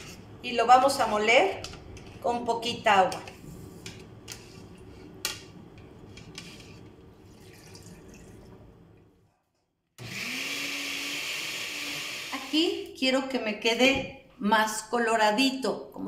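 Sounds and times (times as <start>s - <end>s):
blender motor grinding: 10.0s - 12.8s.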